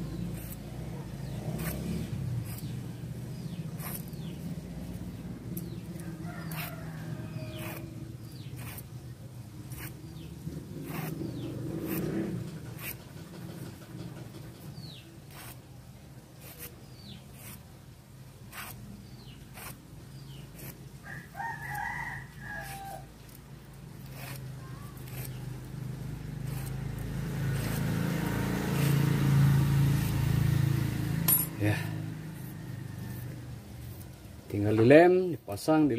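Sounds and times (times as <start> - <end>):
rooster crowing: 6.0 - 8.1, 21.0 - 23.1, 32.2 - 33.6.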